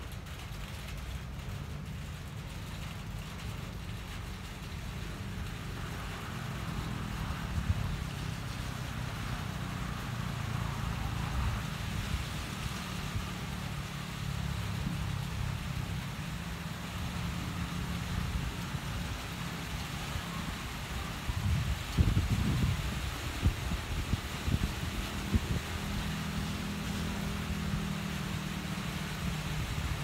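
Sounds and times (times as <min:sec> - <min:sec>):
rain hiss: 0:00.0 - 0:30.0
storm wind buffeting microphone: 0:21.0 - 0:26.8.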